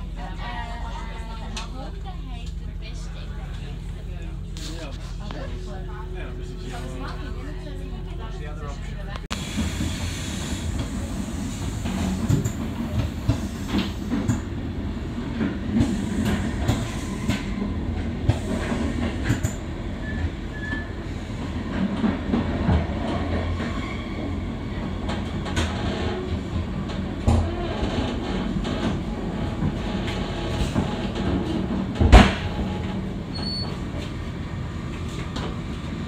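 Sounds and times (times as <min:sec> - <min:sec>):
train rumbling inside carriage: 0:00.0 - 0:36.0
train wheels clicking on rails: 0:09.4 - 0:23.8.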